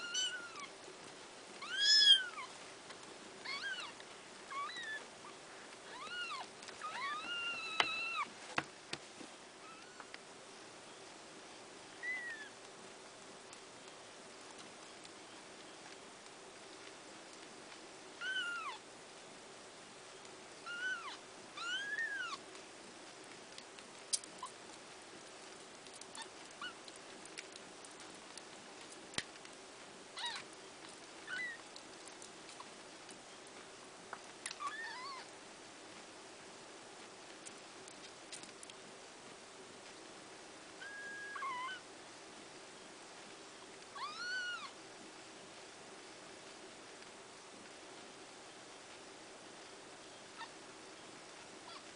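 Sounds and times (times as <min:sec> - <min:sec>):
newborn kittens mewing: 0:00.0 - 0:00.7, 0:01.6 - 0:02.5, 0:03.4 - 0:05.1, 0:05.8 - 0:08.3, 0:12.0 - 0:12.6, 0:18.2 - 0:18.8, 0:20.6 - 0:22.4, 0:34.5 - 0:35.3, 0:40.8 - 0:41.8, 0:44.0 - 0:44.8
faint ticks and rustles: 0:00.0 - 0:51.9.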